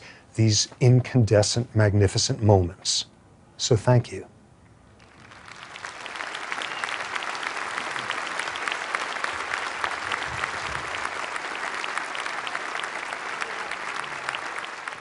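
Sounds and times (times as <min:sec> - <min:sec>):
audience applauding: 0:05.0 - 0:15.0.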